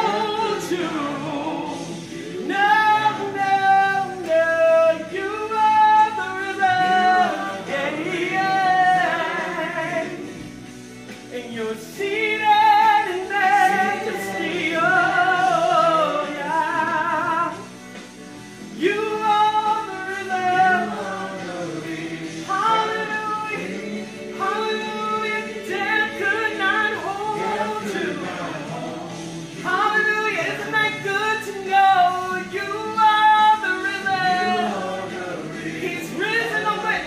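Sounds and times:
woman singing into a microphone: 0:29.6 - 0:37.0.

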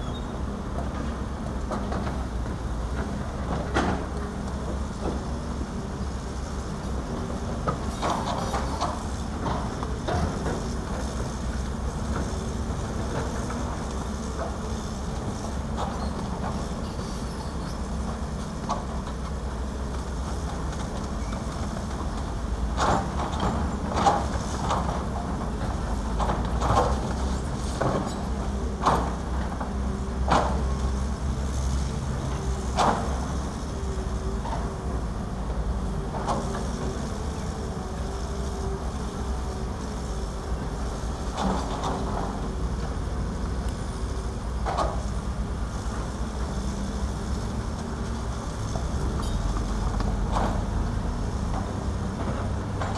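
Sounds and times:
excavator diesel engines: 0:00.0 - 0:52.9.

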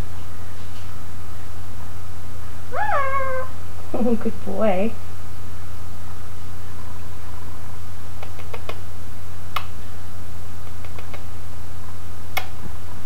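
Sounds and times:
low electrical hum: 0:00.0 - 0:13.0
parakeet beak clicks and smacks: 0:08.2 - 0:08.8, 0:10.6 - 0:11.3.

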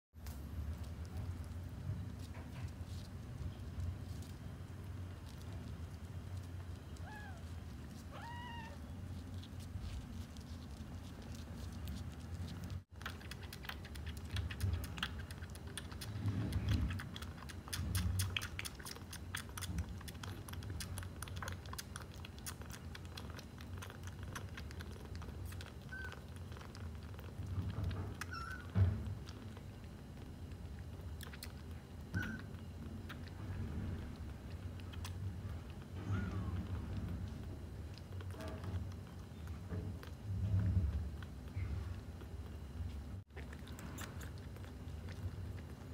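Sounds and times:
kitten mewing: 0:07.0 - 0:07.5, 0:08.1 - 0:08.9, 0:32.1 - 0:32.5
kitten squeaks: 0:07.0 - 0:08.9, 0:25.8 - 0:26.3, 0:28.1 - 0:28.8, 0:32.1 - 0:32.6, 0:36.0 - 0:36.7
kitten suckling from bottle: 0:09.4 - 0:42.7, 0:43.3 - 0:45.9.

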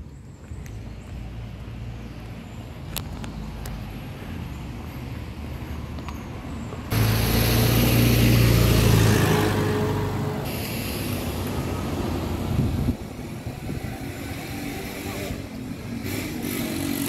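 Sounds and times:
pickup truck driving past: 0:06.9 - 0:11.0.

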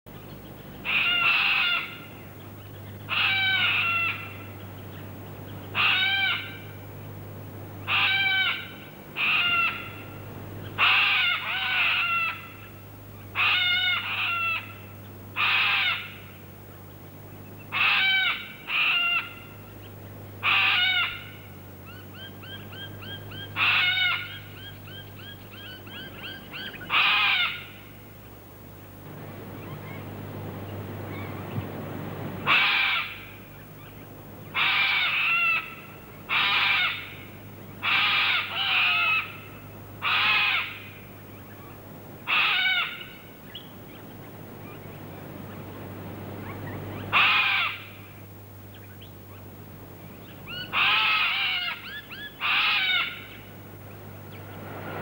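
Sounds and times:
bird calling: 0:00.1 - 0:06.9, 0:07.8 - 0:16.3, 0:17.4 - 0:28.0, 0:29.1 - 0:55.0
low hum: 0:08.7 - 0:10.8, 0:27.8 - 0:34.5, 0:43.6 - 0:47.2, 0:53.2 - 0:55.0.

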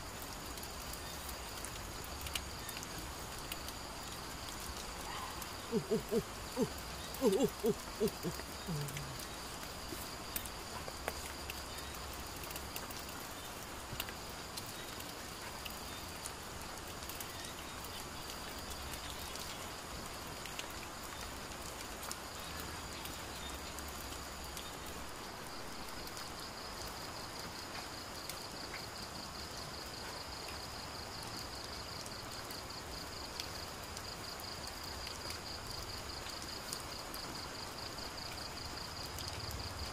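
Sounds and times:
insects trilling: 0:00.0 - 0:39.9
rain hiss: 0:00.0 - 0:39.9
faint clicks: 0:00.5 - 0:15.0.

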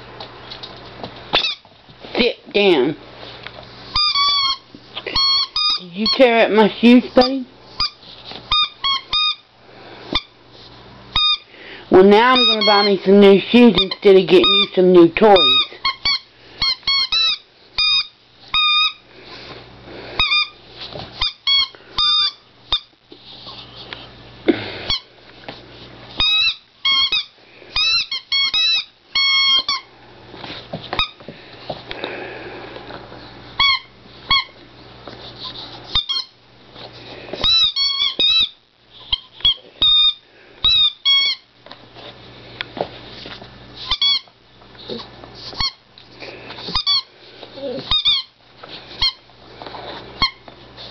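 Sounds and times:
squeaky toy squeaking: 0:01.3 - 0:01.7, 0:03.9 - 0:09.5, 0:11.1 - 0:11.5, 0:12.1 - 0:19.0, 0:20.2 - 0:20.6, 0:21.2 - 0:22.9, 0:26.2 - 0:29.9, 0:33.6 - 0:34.6, 0:35.9 - 0:36.4, 0:37.4 - 0:41.4, 0:43.8 - 0:44.3, 0:45.6 - 0:45.8, 0:46.7 - 0:47.1, 0:47.7 - 0:48.4, 0:49.0 - 0:49.2, 0:50.2 - 0:50.4.

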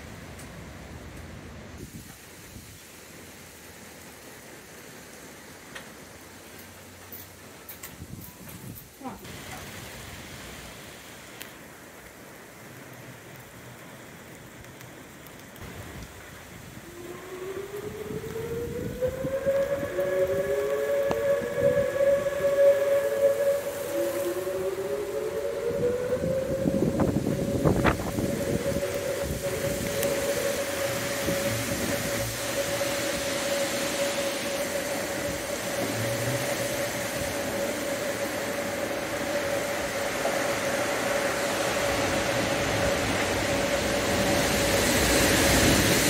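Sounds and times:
wind and rain hiss: 0:00.0 - 0:46.0
warning sirens wailing: 0:11.4 - 0:46.0.

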